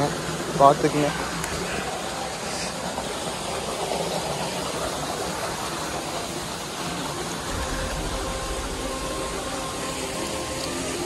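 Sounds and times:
stream water over rocks: 0:00.0 - 0:11.0
faint steady hum: 0:07.0 - 0:11.0.

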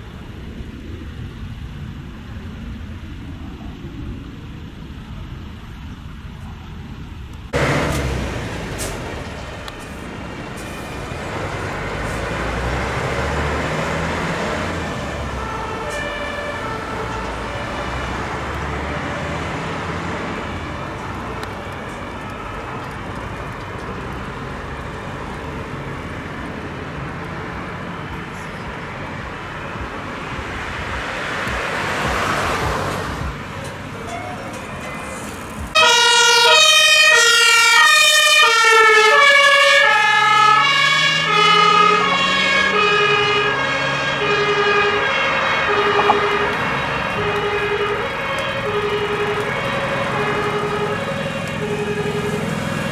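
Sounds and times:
road traffic passing: 0:00.0 - 0:52.9
heavy vehicle passing: 0:07.5 - 0:28.0, 0:28.9 - 0:37.5, 0:40.2 - 0:52.9
distant two-tone siren: 0:10.6 - 0:24.9, 0:35.7 - 0:52.9.

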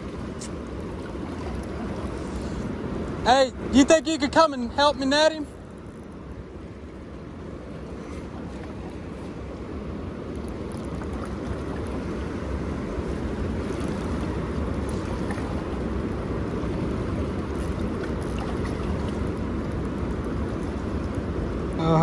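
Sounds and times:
wind rumbling on microphone: 0:05.2 - 0:22.0
turbulent river water rushing: 0:06.5 - 0:22.0.

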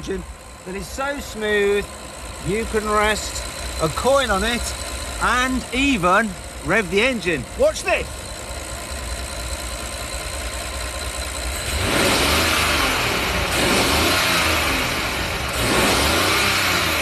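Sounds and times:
car engine idling and revving: 0:00.0 - 0:17.0.

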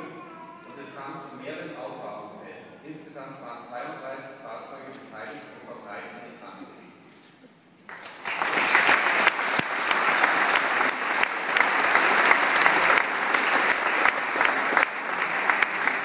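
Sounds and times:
audience applauding: 0:07.9 - 0:16.0.

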